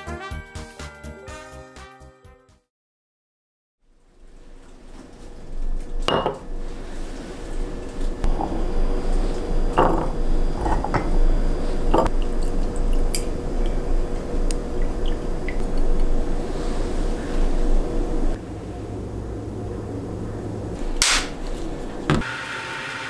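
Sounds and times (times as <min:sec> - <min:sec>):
steady low hum: 0:04.4 - 0:22.2
glassware clinking and knocking: 0:06.1 - 0:06.4.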